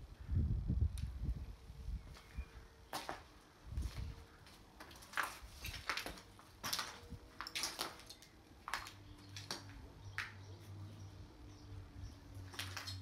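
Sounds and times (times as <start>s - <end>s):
footsteps crunching on broken glass: 2.9s - 10.3s, 12.5s - 13.0s.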